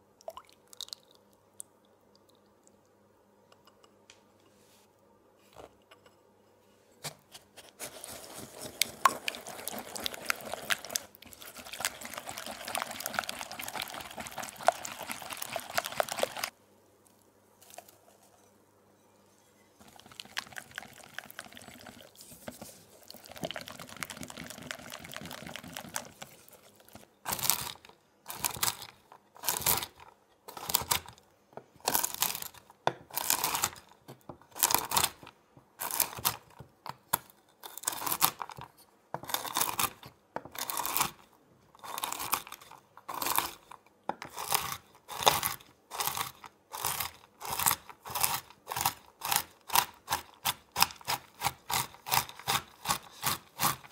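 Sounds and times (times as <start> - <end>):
whisk scraping batter in bowl: 7.9 - 16.5.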